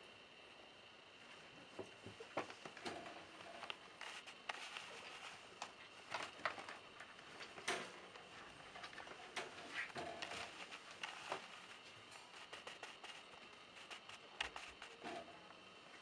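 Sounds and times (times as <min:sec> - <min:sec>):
thin high hum: 0:00.0 - 0:16.0
small clicks and scuffs: 0:03.6 - 0:15.2.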